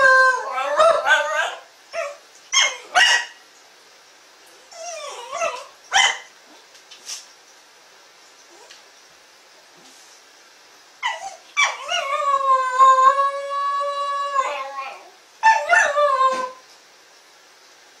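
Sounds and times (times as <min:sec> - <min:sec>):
dog howling: 0:00.0 - 0:03.0, 0:04.7 - 0:05.8, 0:11.0 - 0:16.6
dog yelp: 0:00.0 - 0:03.4, 0:04.7 - 0:06.3, 0:11.0 - 0:12.2, 0:14.4 - 0:16.6.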